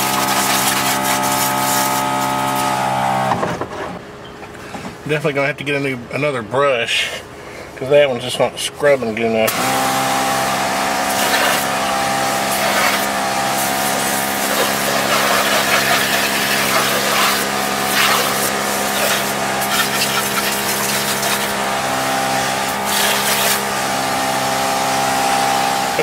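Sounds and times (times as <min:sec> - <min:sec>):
water spraying: 0:00.0 - 0:03.1, 0:09.5 - 0:26.0
electric pump humming: 0:00.0 - 0:03.6, 0:09.4 - 0:26.0
brush scrubbing rubber mat: 0:11.1 - 0:11.7, 0:12.5 - 0:13.1, 0:13.8 - 0:21.6, 0:22.8 - 0:23.7.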